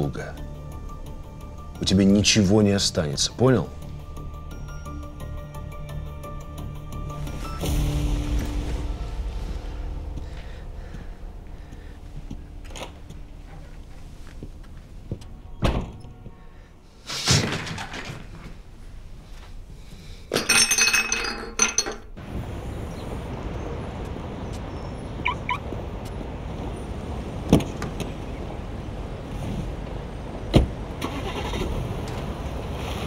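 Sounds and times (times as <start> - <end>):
outdoor traffic hum: 3.7 - 33.0
rustling crash: 7.2 - 14.7, 17.0 - 19.6
thud: 15.6 - 16.1, 17.1 - 18.4
thump: 15.6 - 16.1
china cup clattering and breaking: 20.3 - 22.1.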